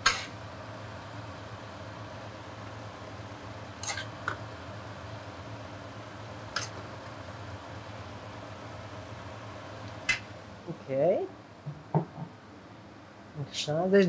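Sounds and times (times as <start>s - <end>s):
low steady hum: 0.0s - 14.0s
utensils clinking on dishes: 3.8s - 4.1s.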